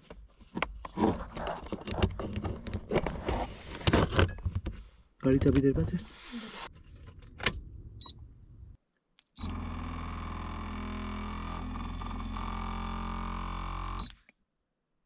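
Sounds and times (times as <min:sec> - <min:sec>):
handling clicks and rustling: 0:00.0 - 0:04.8.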